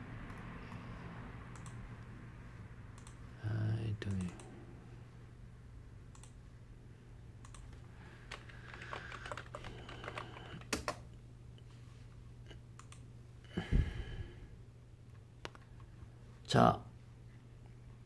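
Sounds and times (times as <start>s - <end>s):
low steady hum: 0.0s - 18.0s
keyboard typing: 1.5s - 1.8s, 3.0s - 3.2s, 4.1s - 4.5s, 7.4s - 11.1s, 15.1s - 15.9s
mouse clicking: 1.5s - 1.8s, 3.0s - 3.2s, 4.1s - 4.5s, 6.1s - 6.4s, 7.4s - 7.8s, 12.8s - 13.0s, 15.4s - 15.9s.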